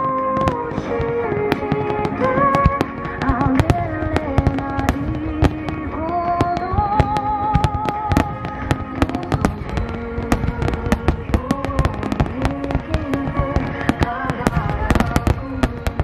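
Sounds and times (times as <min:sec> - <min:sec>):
fireworks bangs: 0:00.0 - 0:16.0
music with wavering melody: 0:00.0 - 0:16.0.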